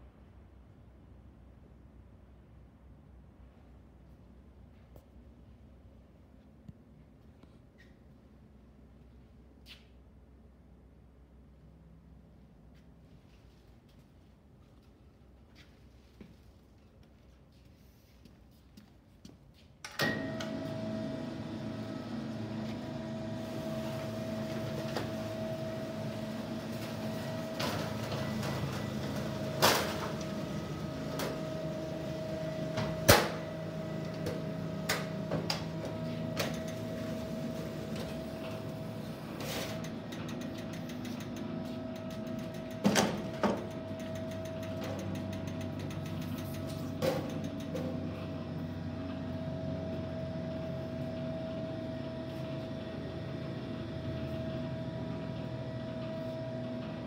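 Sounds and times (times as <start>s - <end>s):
machine motor whine: 20.0s - 57.0s.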